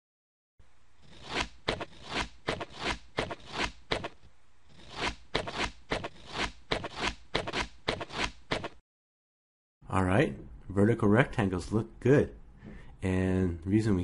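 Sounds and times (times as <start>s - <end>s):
pen scratching on paper: 1.0s - 8.8s.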